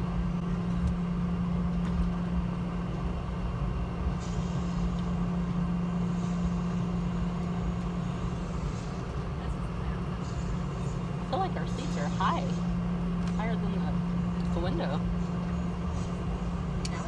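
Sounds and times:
jet engines humming: 0.0s - 17.0s.

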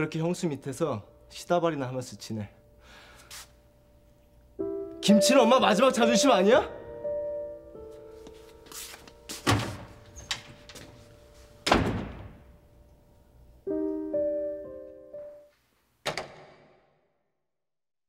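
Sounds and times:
soft piano chords: 0.0s - 3.1s, 3.8s - 15.5s.

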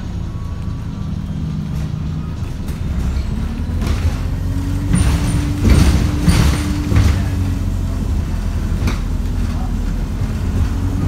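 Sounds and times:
bus engine drone: 0.0s - 11.0s
bodywork rattling: 1.6s - 9.2s.

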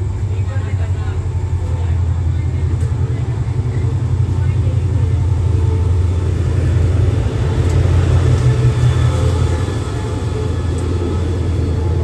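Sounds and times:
diesel locomotive rumbling past: 0.0s - 12.0s.

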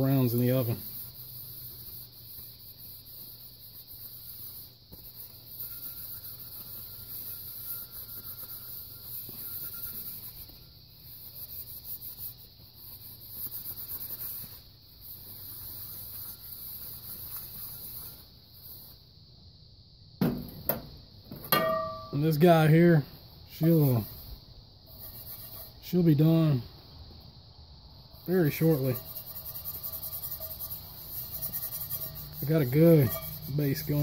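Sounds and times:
cloth rag wiping skillet: 28.5s - 34.0s.

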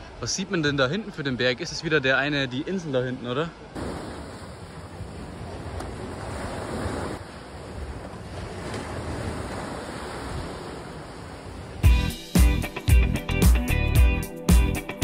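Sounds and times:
sea waves breaking on beach: 3.6s - 11.9s.

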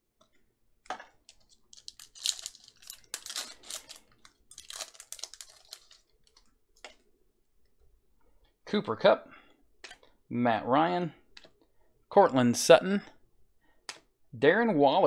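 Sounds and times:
foil wrapper crinkling and ripping: 1.3s - 6.4s.

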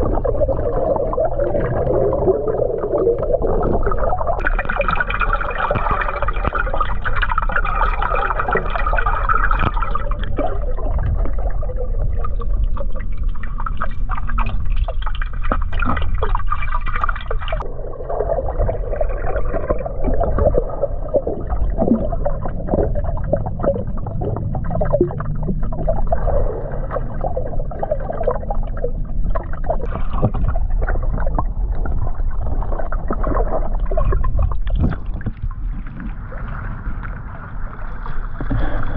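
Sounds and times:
muffled underwater bubbling: 0.0s - 38.9s
steady low rumble: 17.5s - 38.9s.

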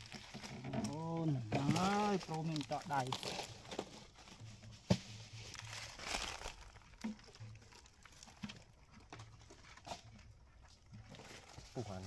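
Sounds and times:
palm pith tearing and crackling: 0.0s - 4.2s, 4.9s - 8.7s.

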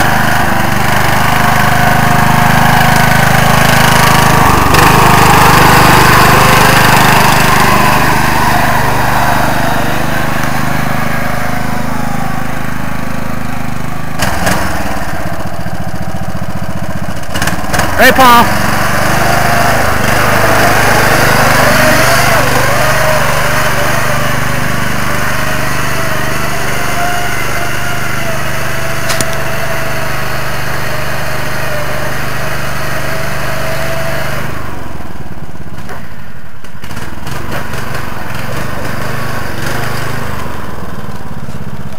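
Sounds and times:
small engines running under load: 0.0s - 41.9s
sharp click: 29.1s - 29.4s.

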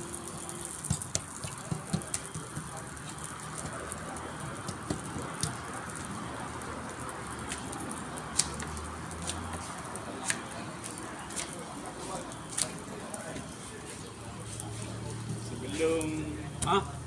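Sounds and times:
crackling hiss: 0.0s - 17.0s.

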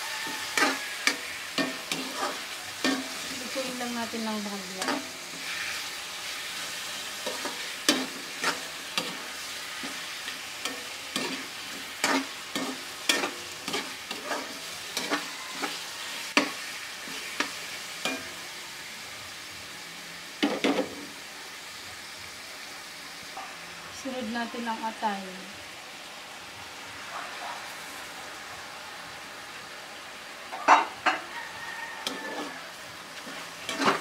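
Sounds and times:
spatula scraping wok: 0.0s - 19.0s, 20.3s - 21.2s, 30.5s - 34.0s
chicken sizzling in hot oil: 0.0s - 34.0s.

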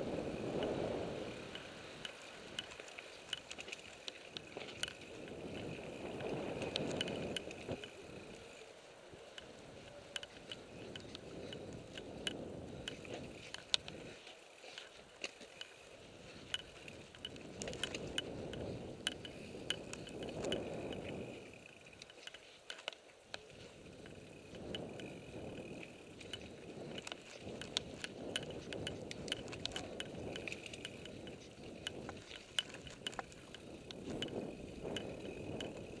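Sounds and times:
bike tyres rumbling over dirt: 0.0s - 36.0s
freehub ticking: 0.0s - 36.0s.

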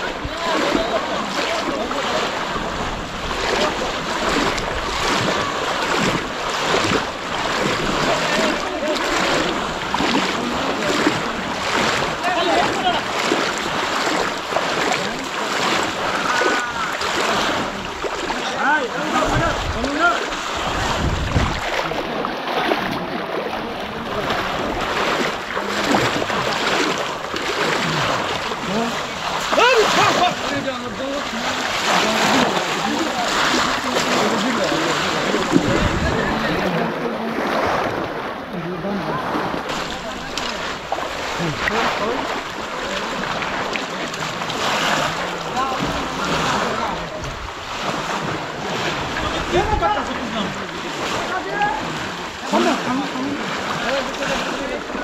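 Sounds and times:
faint voices: 0.0s - 55.0s
water splashing and sloshing: 0.0s - 55.0s
faint calls of people: 3.4s - 18.6s.

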